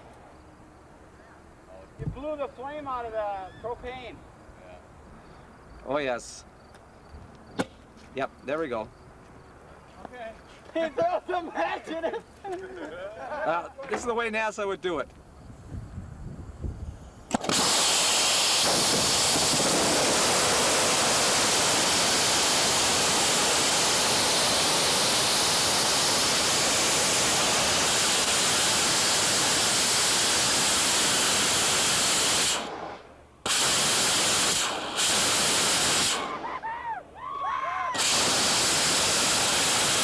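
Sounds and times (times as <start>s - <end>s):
rocket motor roaring: 17.2s - 36.8s, 37.9s - 40.0s.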